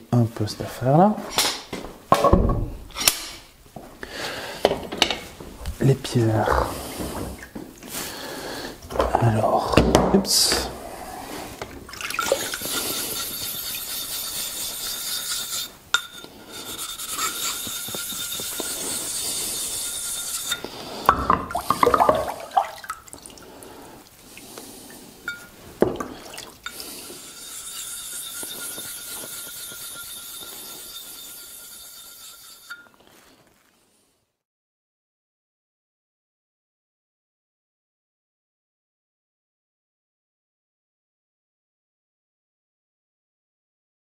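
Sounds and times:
objects knocking and clattering: 2.1 - 2.8, 4.6 - 5.3, 21.1 - 22.4
water rushing: 21.5 - 23.4.

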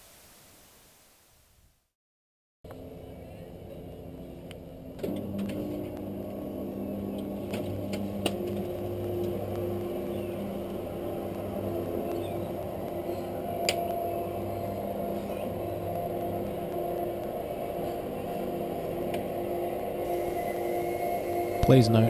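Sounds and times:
roller shutter motor humming: 4.8 - 22.0.

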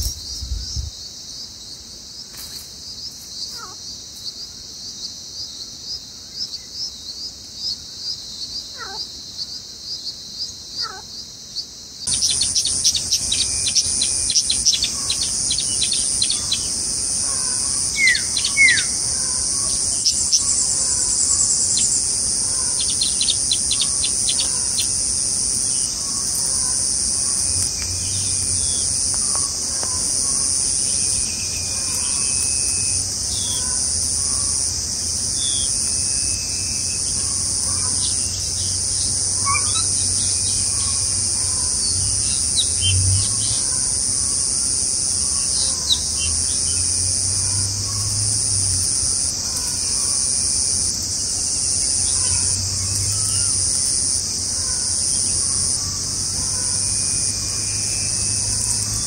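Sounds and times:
high-pitched insect drone: 12.0 - 59.0
bird chirps and calls: 12.1 - 34.4, 39.4 - 43.6.

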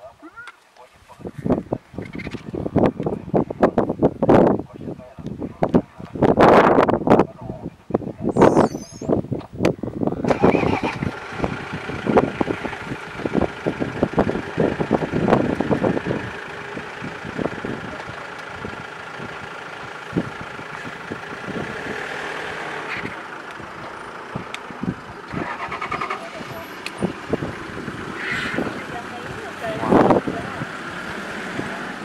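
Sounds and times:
vehicle engine running: 10.2 - 32.0.

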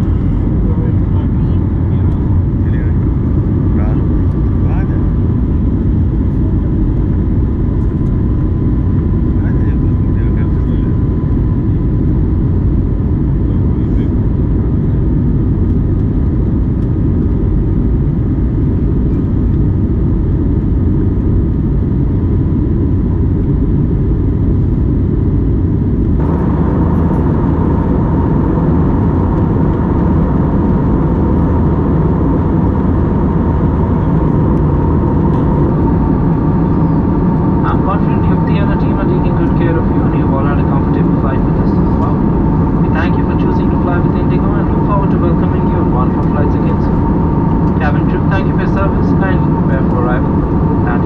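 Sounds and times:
aircraft cabin engine rumble: 0.0 - 51.0
faint steady hum: 0.0 - 51.0.

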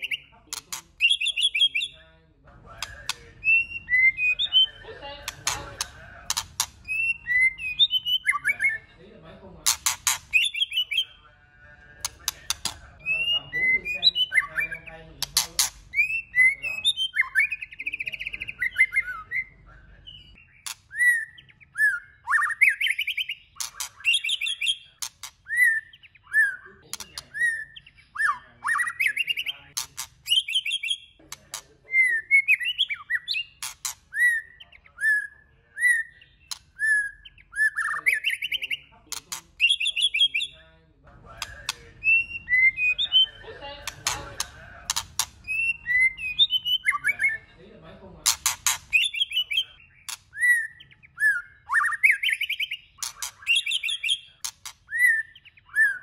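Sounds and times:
songbird whistling song: 0.0 - 8.9, 9.8 - 11.2, 12.0 - 39.0, 39.6 - 40.7, 41.3 - 47.5, 48.4 - 56.0
bird clicking notes: 2.8 - 3.6, 5.2 - 7.0, 9.7 - 10.8, 12.0 - 13.3, 15.2 - 16.1, 43.8 - 45.8, 48.3 - 49.2.

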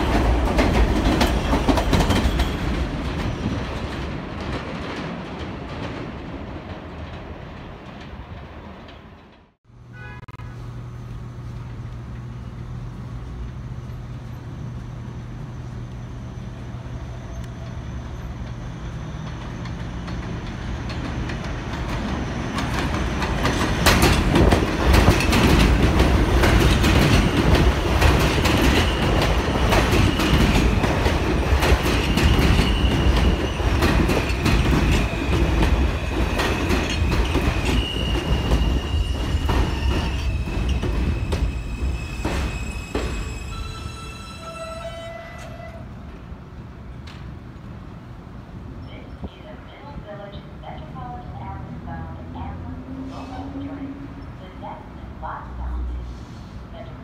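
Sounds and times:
subway train passing: 0.0 - 57.0
wheels clattering over rail joints: 19.2 - 41.6
high wheel squeal: 36.9 - 45.8.

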